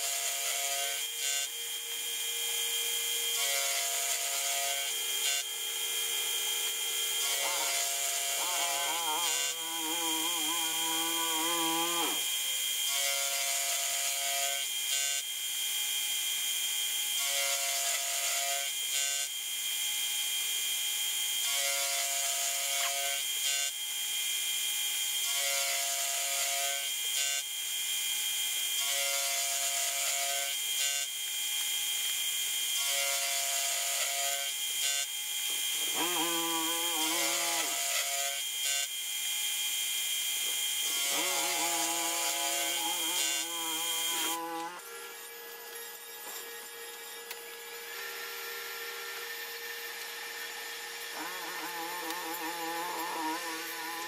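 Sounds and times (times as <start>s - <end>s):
metal cutting tone: 0.0s - 14.6s, 32.8s - 39.0s, 39.6s - 54.0s
milling machine spindle whine: 0.0s - 54.0s.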